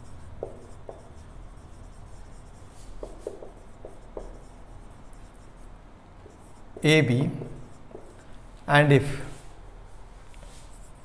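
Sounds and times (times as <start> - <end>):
marker squeaking on whiteboard: 0.0 - 8.3.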